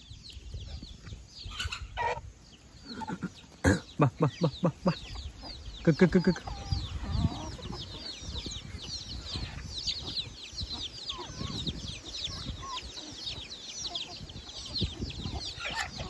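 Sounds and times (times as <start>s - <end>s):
chicks peeping: 0.0s - 16.0s
hens clucking softly: 1.0s - 8.6s.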